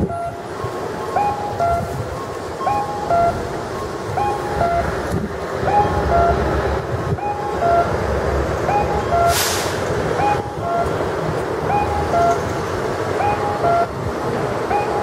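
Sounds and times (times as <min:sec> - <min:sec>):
electronic cuckoo call signal: 0:00.0 - 0:05.0, 0:05.6 - 0:06.4, 0:07.1 - 0:08.0, 0:08.7 - 0:09.4, 0:10.2 - 0:11.0, 0:11.6 - 0:12.4, 0:13.2 - 0:14.0, 0:14.7 - 0:15.0
low traffic rumble: 0:00.0 - 0:15.0
short hiss: 0:09.3 - 0:09.9
fainter higher cuckoo call: 0:11.7 - 0:12.4.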